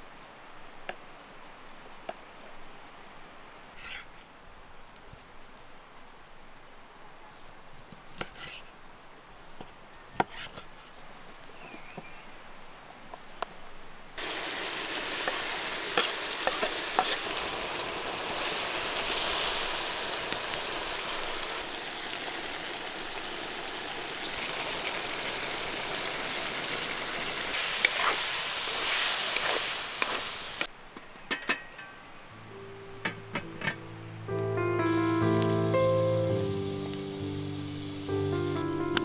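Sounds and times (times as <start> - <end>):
food sizzling in a pot: 14.2 - 30.7, 36.3 - 38.6.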